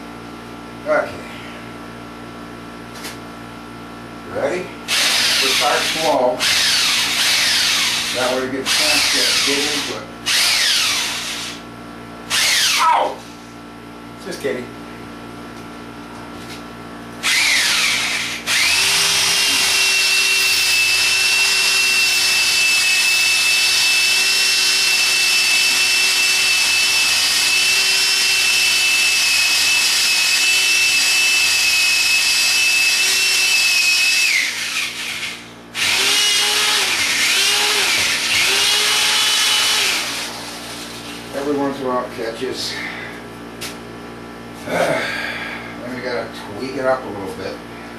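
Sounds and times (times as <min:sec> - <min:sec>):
electric drill boring into concrete: 0:04.9 - 0:11.6, 0:12.3 - 0:12.8, 0:17.2 - 0:40.9.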